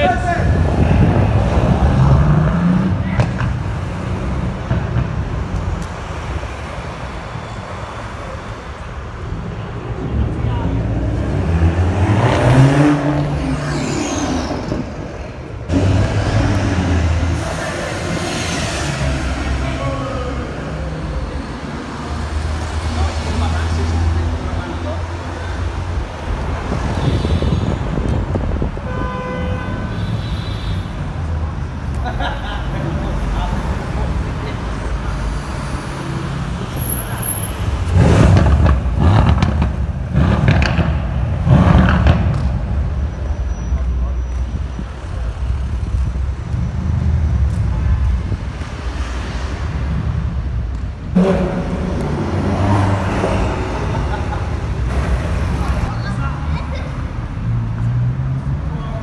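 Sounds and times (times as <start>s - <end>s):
cars driving past: 0.0s - 59.0s
car horn: 26.8s - 27.9s, 28.8s - 31.0s, 51.1s - 52.9s.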